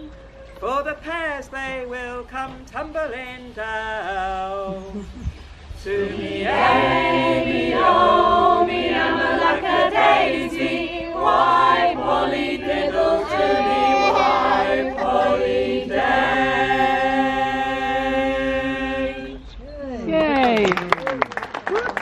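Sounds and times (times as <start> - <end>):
mixed choir singing in harmony: 5.8 - 19.5.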